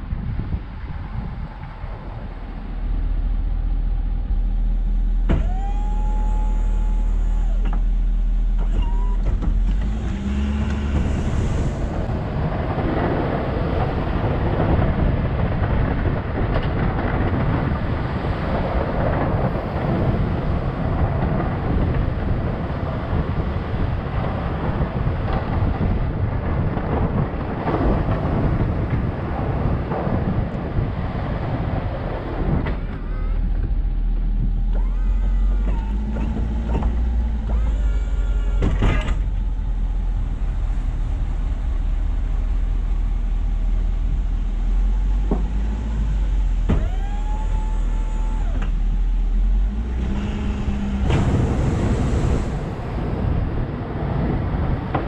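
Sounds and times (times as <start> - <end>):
rising whine: 0.0 - 15.8, 31.6 - 55.0
rough truck rumble: 0.0 - 55.0
truck engine hum: 0.0 - 55.0.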